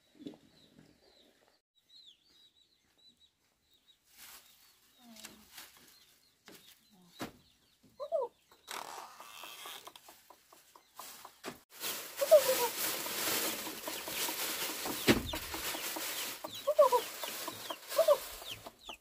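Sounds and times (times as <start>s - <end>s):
small birds chirping: 0.0s - 19.0s
rustle: 4.0s - 7.3s, 11.0s - 18.6s
chickens clucking: 7.8s - 19.0s.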